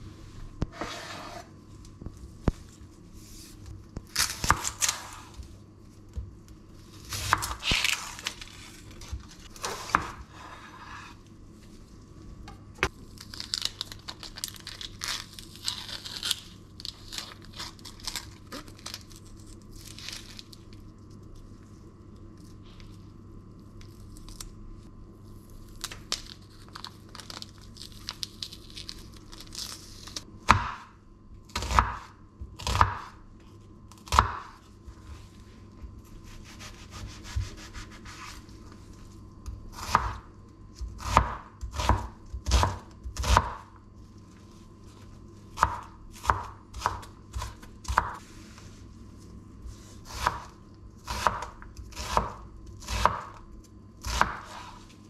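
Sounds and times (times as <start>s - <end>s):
rustling of onion being peeled: 1.7s - 30.3s, 33.4s - 55.0s
knife chopping on wooden board: 30.5s - 30.9s, 39.8s - 40.2s, 45.6s - 48.2s.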